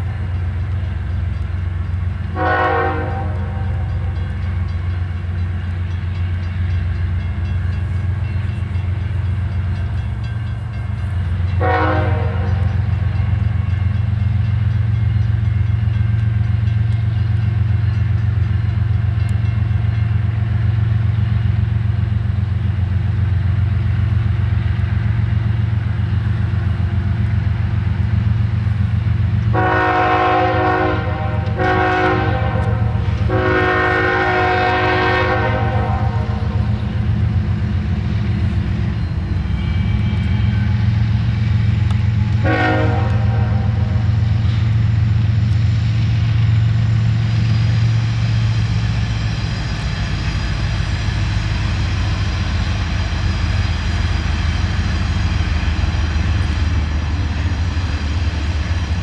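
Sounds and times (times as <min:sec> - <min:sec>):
diesel locomotive engine drone: 0:00.0 - 0:59.0
locomotive horn blasts: 0:02.3 - 0:04.2, 0:11.6 - 0:13.1, 0:29.5 - 0:37.0, 0:42.3 - 0:44.2.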